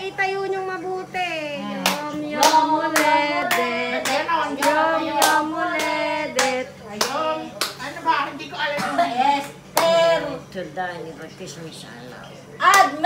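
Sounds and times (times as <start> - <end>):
group singing: 1.6 - 10.4
people clapping in time: 1.8 - 7.8.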